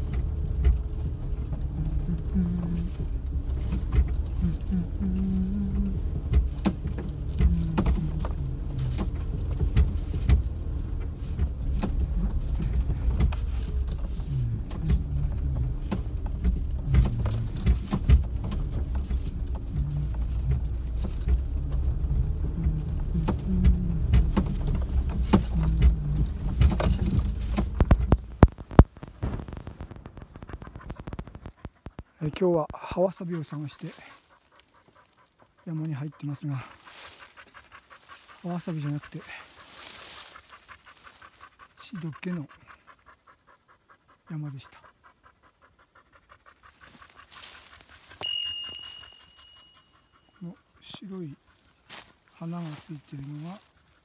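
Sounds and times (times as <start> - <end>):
light metallic jingling: 0.0 - 28.4, 45.8 - 54.0
microphone handling rumble: 0.0 - 32.8
footsteps on dirt track: 0.0 - 42.8, 46.5 - 54.0.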